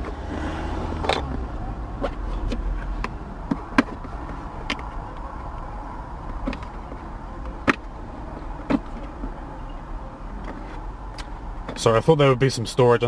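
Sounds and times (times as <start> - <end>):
sharp clicks of car controls: 6.2 - 9.2.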